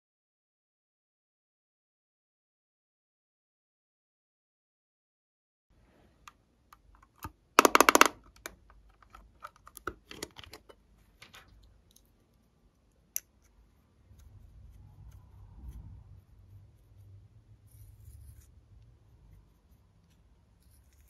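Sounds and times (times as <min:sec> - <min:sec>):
plastic clicking and rattling: 0:07.0 - 0:11.6.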